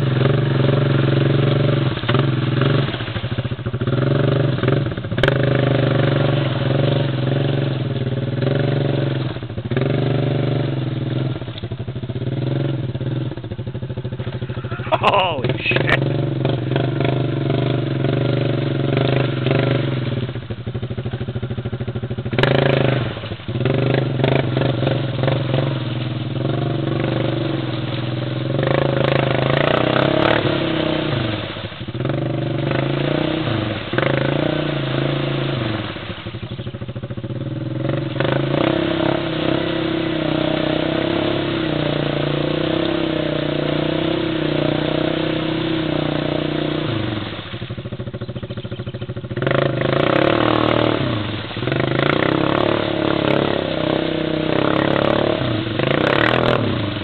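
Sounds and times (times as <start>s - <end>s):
atv engine revving under load: 0.0s - 57.0s
churning through mud and water: 0.0s - 57.0s.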